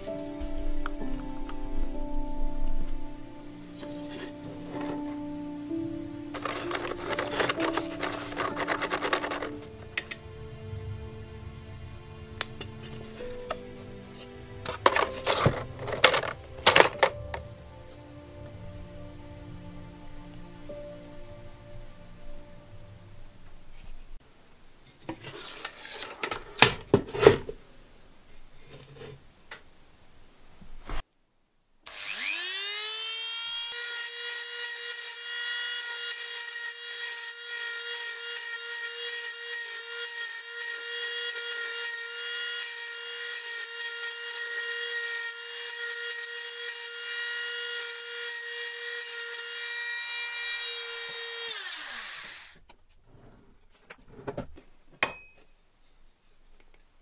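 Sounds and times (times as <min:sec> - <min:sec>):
rotary tool grinding metal: 0:06.3 - 0:10.2, 0:14.6 - 0:17.1, 0:31.9 - 0:52.6.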